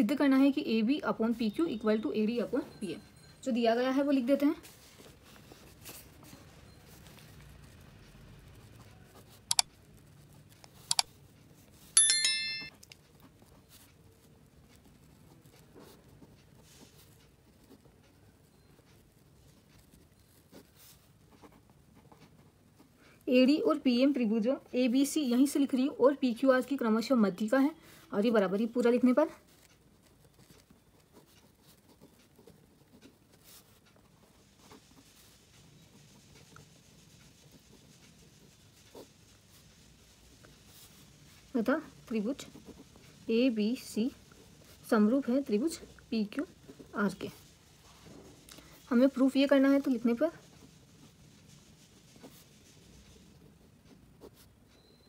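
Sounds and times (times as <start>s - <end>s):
bright bell ding: 12.0s - 12.7s
pen writing on paper: 13.1s - 23.0s, 28.6s - 39.8s, 52.0s - 54.9s.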